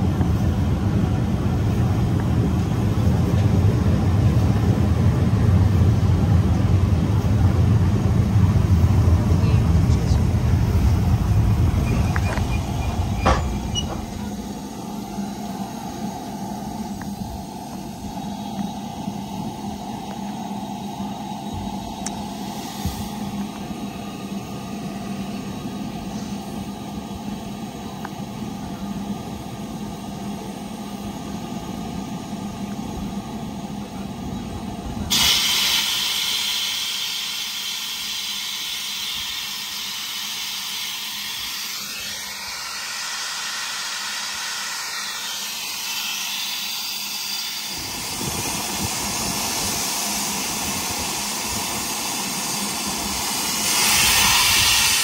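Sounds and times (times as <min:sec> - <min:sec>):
low rumble: 0:00.0 - 0:18.9
steam locomotive hissing steam: 0:00.0 - 0:55.0.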